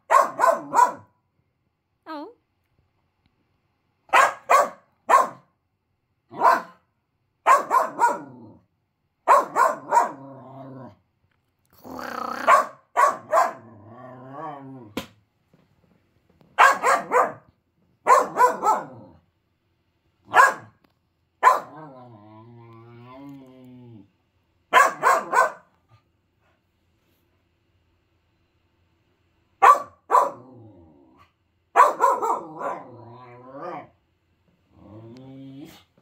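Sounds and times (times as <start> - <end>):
puppy barking: 0.0 - 1.1, 4.1 - 5.5, 6.3 - 6.8, 7.4 - 8.4, 9.2 - 10.2, 12.4 - 13.7, 16.6 - 19.1, 20.3 - 20.8, 21.4 - 21.8, 24.7 - 25.8, 29.6 - 30.4, 31.7 - 32.9
puppy grumbling: 11.7 - 12.8, 21.7 - 24.1, 34.7 - 35.9.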